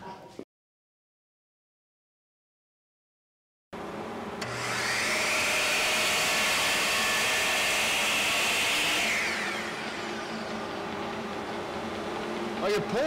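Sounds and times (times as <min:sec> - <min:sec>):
miter saw motor whine: 0:03.8 - 0:13.0.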